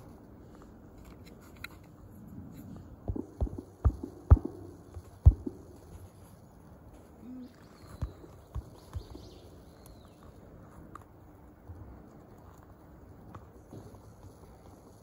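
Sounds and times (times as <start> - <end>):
faint outdoor hiss: 0.0 - 15.0
dull low thumps: 3.0 - 6.0.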